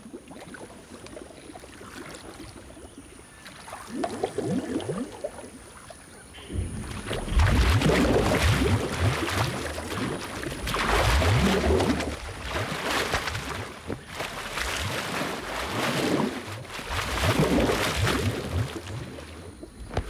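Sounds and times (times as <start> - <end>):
water sloshing: 0.0 - 20.0
elephants splashing in mud: 6.4 - 20.0.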